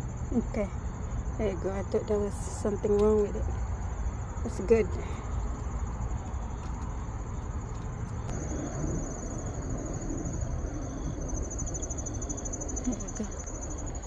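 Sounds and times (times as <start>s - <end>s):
crickets trilling: 0.0s - 14.0s
low rumble: 3.4s - 14.0s.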